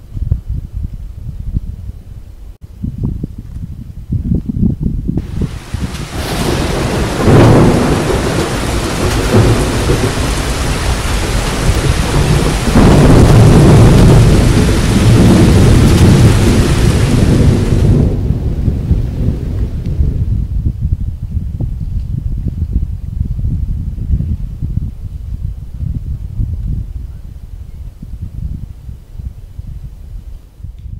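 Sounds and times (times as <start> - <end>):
heavy rain hissing: 5.2 - 19.7
thunder rolling: 5.2 - 21.8.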